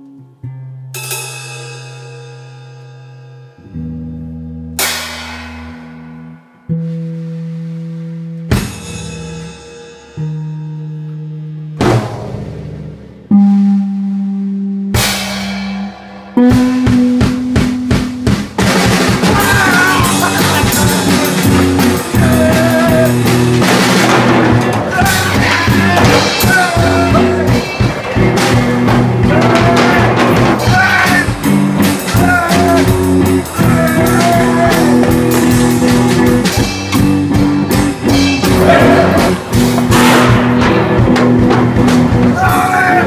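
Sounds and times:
drum kit: 0.9 - 43.0
electric guitar: 14.9 - 43.0.

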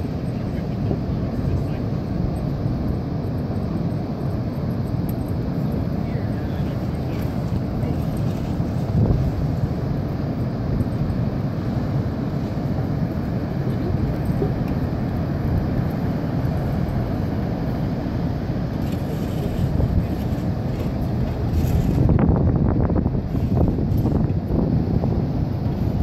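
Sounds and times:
ocean surf breaking: 5.5 - 26.0.

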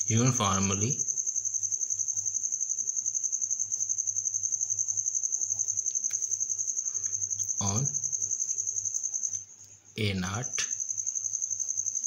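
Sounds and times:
insect trilling: 0.0 - 12.0.

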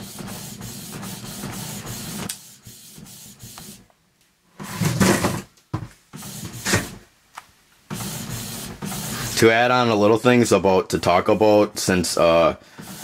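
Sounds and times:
printer motor and carriage movement: 0.0 - 3.8, 6.2 - 7.0, 7.9 - 9.5, 12.3 - 13.0.

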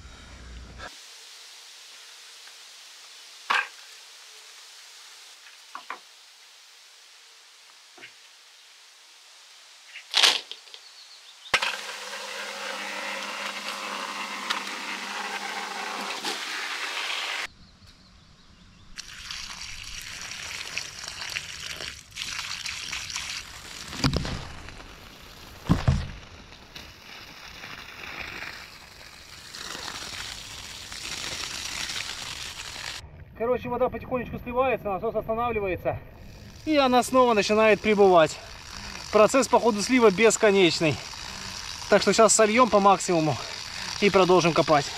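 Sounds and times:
drainage pump running: 11.6 - 17.5, 36.4 - 44.9
water pouring: 19.0 - 33.0, 36.5 - 44.9.

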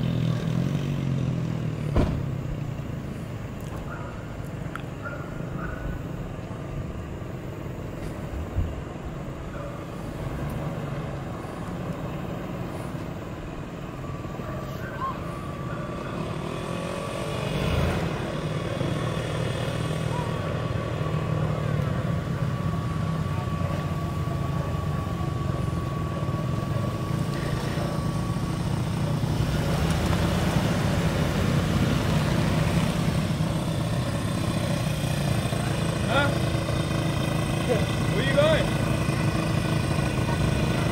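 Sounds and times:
steady engine noise: 0.0 - 40.9
car driving past: 9.6 - 40.9.

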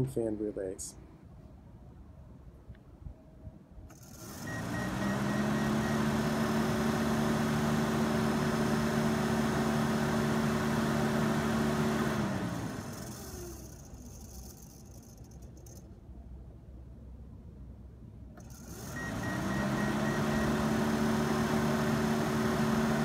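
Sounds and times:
electric cooling fans whirring: 3.9 - 15.9, 18.3 - 23.0.

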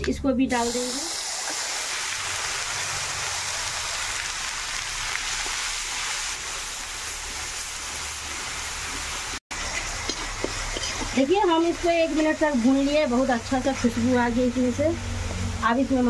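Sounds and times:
paste sizzling in hot oil: 0.5 - 16.0
spatula stirring: 10.0 - 11.6.

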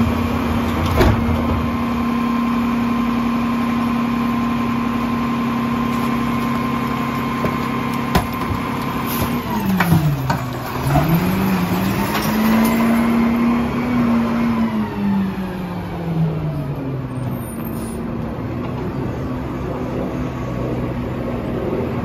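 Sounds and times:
truck engine running: 0.0 - 17.4.

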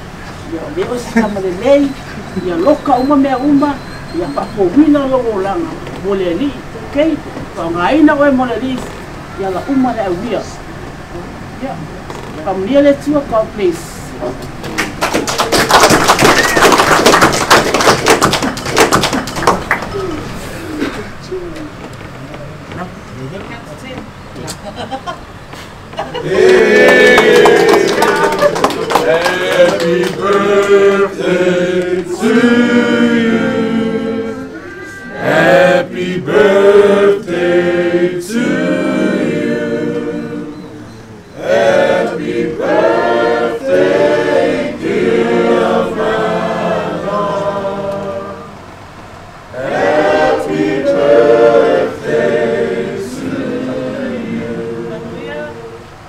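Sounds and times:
choir singing unaccompanied: 26.1 - 56.0.

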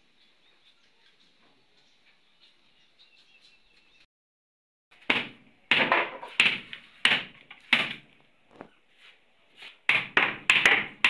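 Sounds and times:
faint bird chirping: 0.0 - 4.1
loud bangs on wood: 5.0 - 8.1, 9.9 - 11.0.

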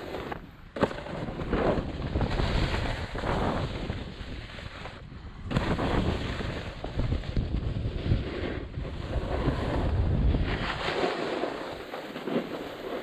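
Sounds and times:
wind on microphone: 0.0 - 11.9
skis swishing over snow: 1.4 - 5.0, 5.6 - 13.0.

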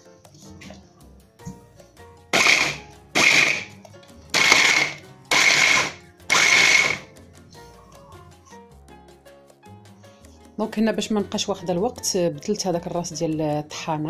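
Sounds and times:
electric hand blender chopping: 2.3 - 7.1.

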